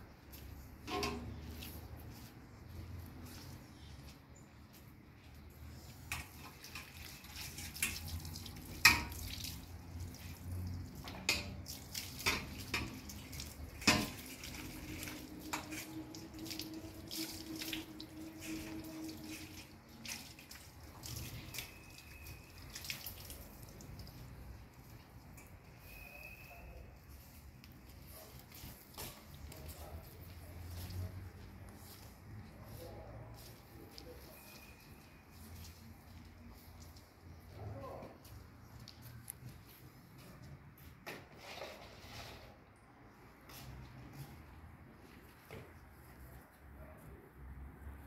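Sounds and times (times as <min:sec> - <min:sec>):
water running onto metal tray: 0:06.1 - 0:25.5.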